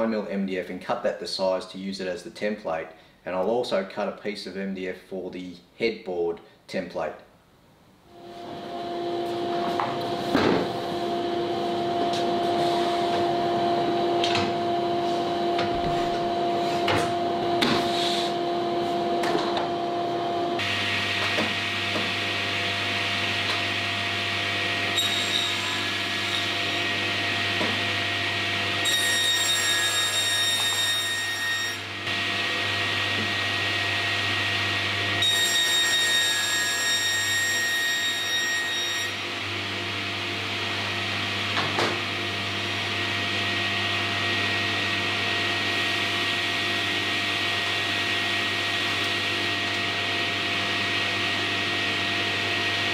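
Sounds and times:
saw blade whine cutting board: 8.1 - 52.9
dust extraction running: 8.2 - 25.0, 39.2 - 52.9.

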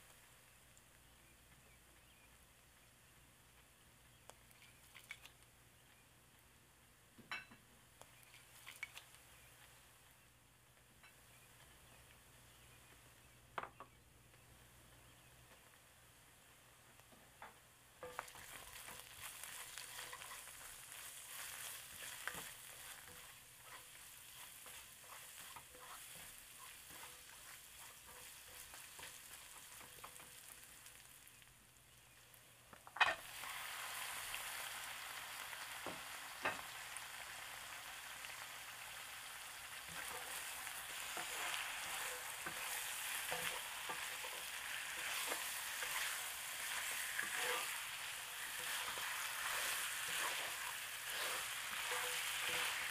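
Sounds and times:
food sizzling in a wok: 0.0 - 0.9, 17.9 - 31.5, 33.0 - 52.9
spatula scraping a pan: 18.0 - 30.7, 39.8 - 52.9.

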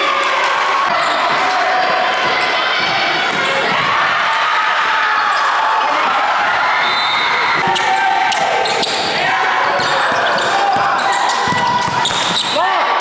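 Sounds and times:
crowd voices and shouting: 0.0 - 13.0
basketball bouncing on court: 7.6 - 12.6.

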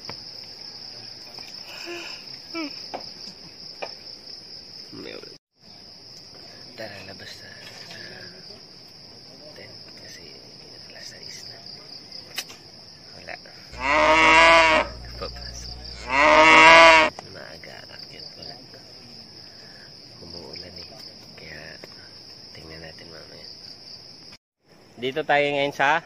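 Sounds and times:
crickets chirping: 0.0 - 26.0
cow mooing: 13.8 - 17.1.

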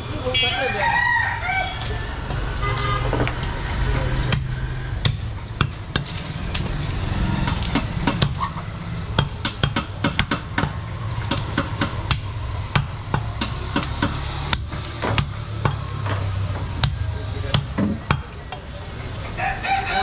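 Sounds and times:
cleaver chopping meat on wood: 4.3 - 6.1, 7.4 - 8.4, 9.2 - 18.4.

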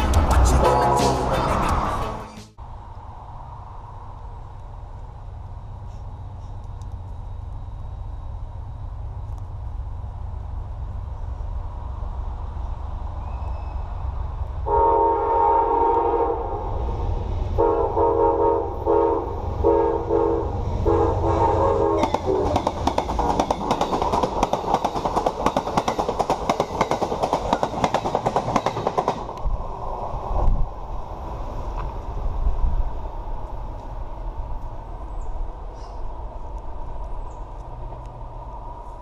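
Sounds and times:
train rumbling past: 0.0 - 39.0
train horn blasts: 14.6 - 16.6, 17.6 - 22.6
wheels clacking over rail joints: 21.9 - 29.5.

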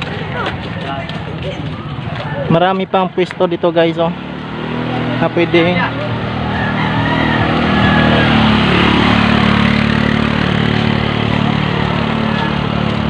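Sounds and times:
motor scooter engine humming: 0.0 - 13.0.

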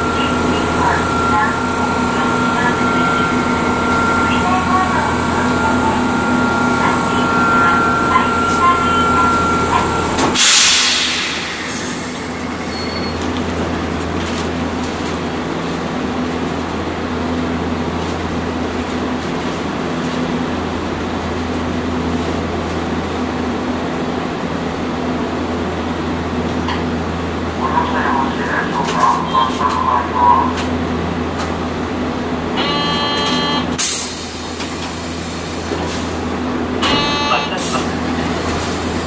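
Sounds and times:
streetcar running noise: 0.0 - 39.0
loud air hiss: 10.4 - 12.6.

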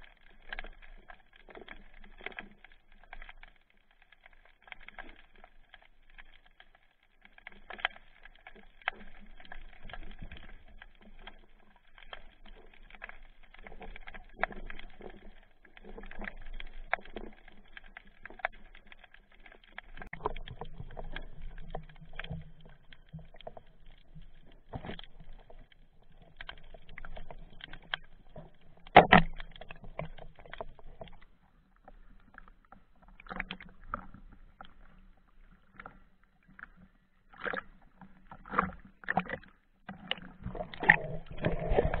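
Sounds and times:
muffled underwater water movement: 0.0 - 42.0.

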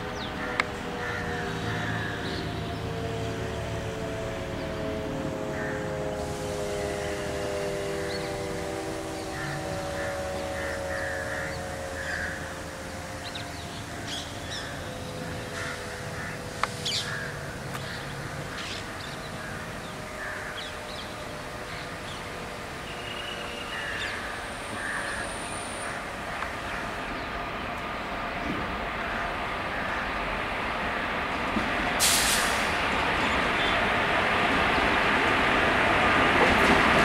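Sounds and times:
electric locomotive hum: 0.0 - 37.0
crows cawing: 0.4 - 2.4, 5.5 - 5.9, 9.2 - 12.7, 13.3 - 21.0, 23.6 - 27.1, 29.0 - 30.2.

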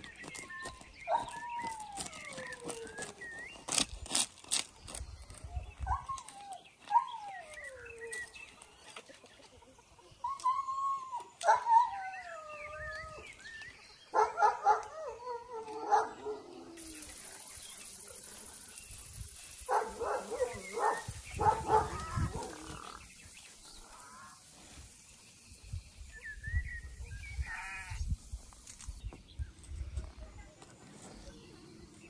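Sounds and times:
faint high hiss: 16.7 - 26.4
animals crying out: 20.0 - 23.1, 27.4 - 28.0.

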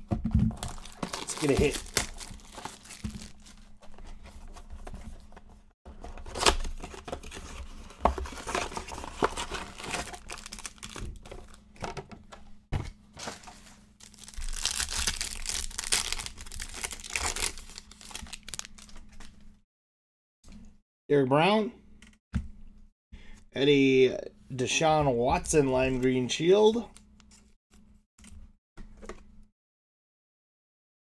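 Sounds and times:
foil packs crinkling and tearing: 0.5 - 3.7, 6.1 - 11.6, 13.2 - 19.3.

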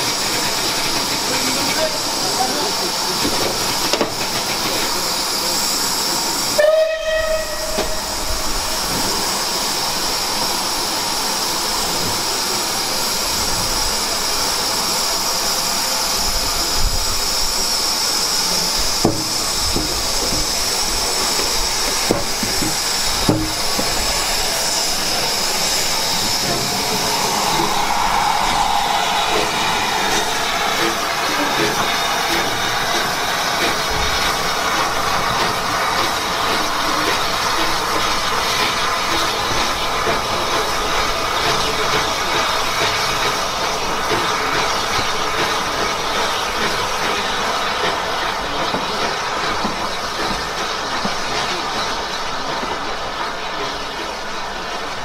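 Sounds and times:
steam locomotive hissing: 0.0 - 55.0
steam whistle: 6.6 - 9.0, 24.4 - 34.2.

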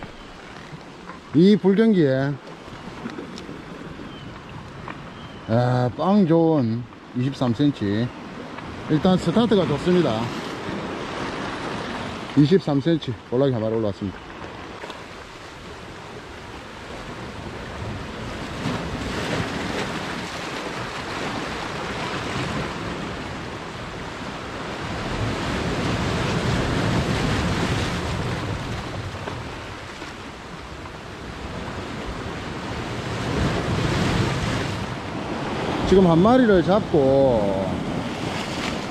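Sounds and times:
sea swell washing on rocky shore: 14.6 - 38.9.

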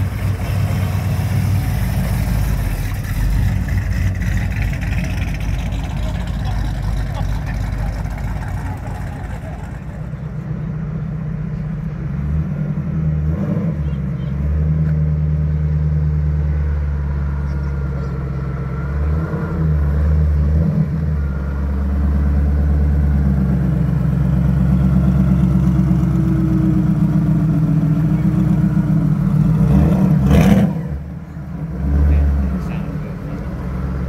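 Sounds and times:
car engine running loudly: 0.0 - 12.9
car engine sharp rev: 22.0 - 34.0.

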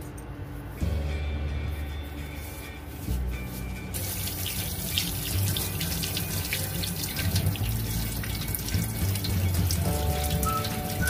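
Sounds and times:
tap water running into sink: 4.0 - 11.0.

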